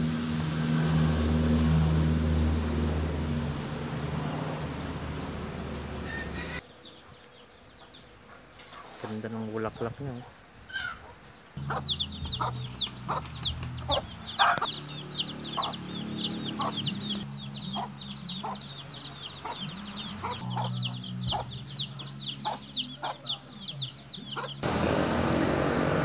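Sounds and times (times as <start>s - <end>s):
chicks peeping: 6.0s - 25.6s
chicken clucking: 10.8s - 14.8s, 15.6s - 15.8s, 16.4s - 24.6s.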